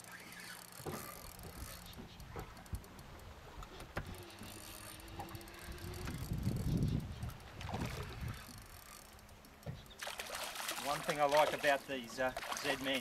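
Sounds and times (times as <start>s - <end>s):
fishing reel clicking: 0.0s - 3.4s, 4.0s - 10.0s
fishing reel whine: 0.0s - 3.4s, 4.0s - 10.3s
wind on microphone: 5.1s - 8.7s.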